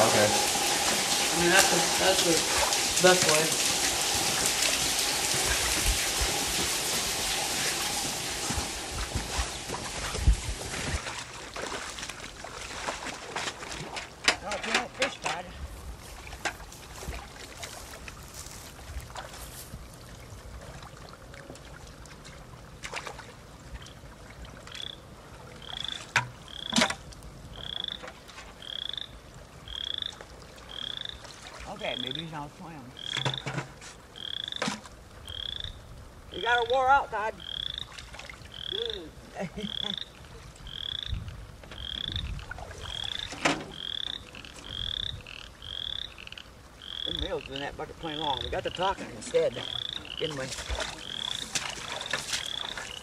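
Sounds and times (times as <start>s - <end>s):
sharp splashes: 0.0s - 15.5s, 37.4s - 41.1s, 41.8s - 53.0s
frog peeping: 25.6s - 26.8s, 28.6s - 31.2s, 35.2s - 37.9s, 38.5s - 41.2s, 41.8s - 53.0s.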